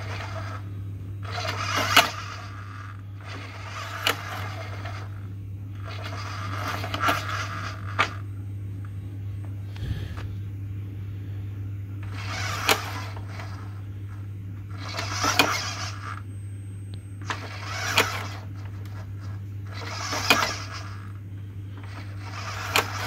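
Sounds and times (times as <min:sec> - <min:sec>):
landing gear mechanical whirring: 0:00.0 - 0:10.4, 0:12.0 - 0:16.3, 0:17.1 - 0:23.0
steady low hum: 0:00.0 - 0:23.0.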